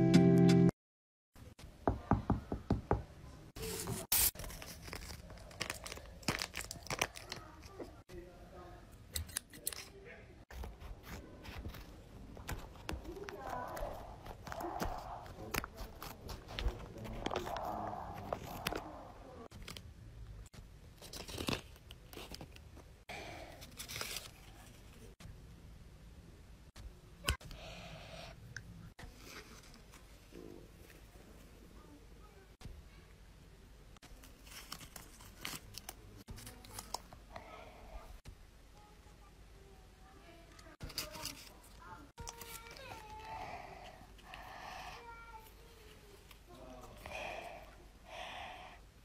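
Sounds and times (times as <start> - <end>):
paper crinkling and rustling: 3.6 - 8.0, 10.5 - 19.9, 20.9 - 22.9, 23.6 - 25.2, 34.0 - 37.1, 40.6 - 43.3.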